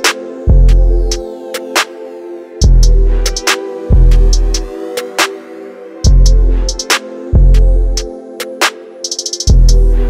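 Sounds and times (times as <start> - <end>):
drum machine beat: 0.0 - 1.2, 2.6 - 4.7, 6.1 - 10.0
hi-hat roll: 2.6 - 4.7, 6.1 - 7.0, 7.9 - 10.0.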